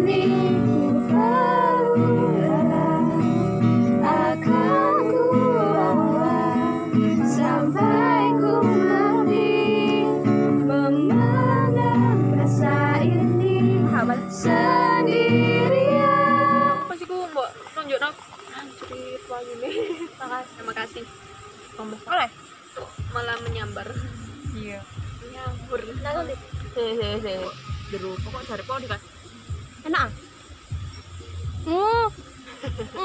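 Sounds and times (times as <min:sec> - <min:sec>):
woman singing: 0:00.0 - 0:17.0
acoustic guitar strumming: 0:00.0 - 0:18.1, 0:20.2 - 0:33.0.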